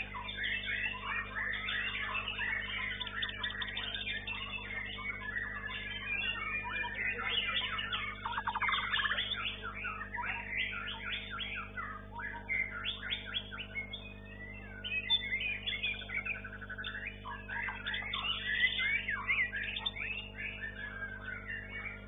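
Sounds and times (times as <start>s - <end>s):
faint steady hum: 0.0s - 22.0s
songbird singing: 0.0s - 22.0s.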